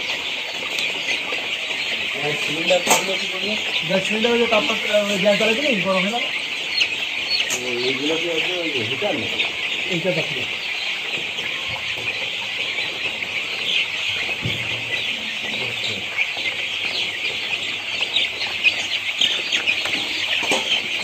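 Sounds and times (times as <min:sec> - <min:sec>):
chicks peeping: 0:00.0 - 0:21.0.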